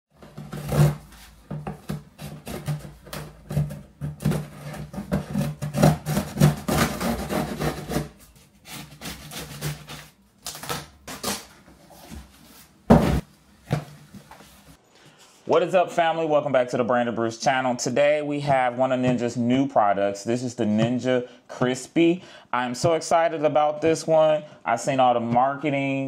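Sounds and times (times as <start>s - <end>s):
cardboard scraping and rustling: 0.2s - 14.8s
box cutter slicing tape: 4.2s - 11.6s.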